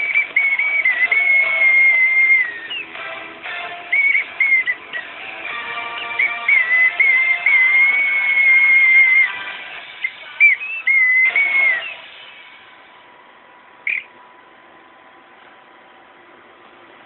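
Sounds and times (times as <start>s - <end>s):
boatswain's pipe whistling: 0.0s - 3.0s, 3.7s - 12.2s, 13.8s - 14.2s.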